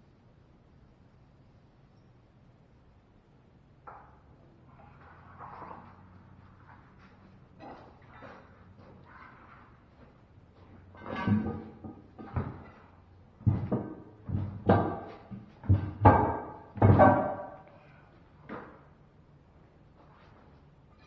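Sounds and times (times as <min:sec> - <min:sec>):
tire thumping onto steel rim: 0:10.8 - 0:17.6.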